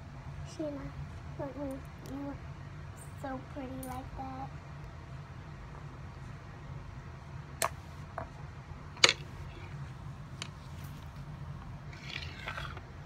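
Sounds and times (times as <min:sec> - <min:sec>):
steady low hum: 0:00.0 - 0:13.0
soft rustle: 0:09.4 - 0:12.8.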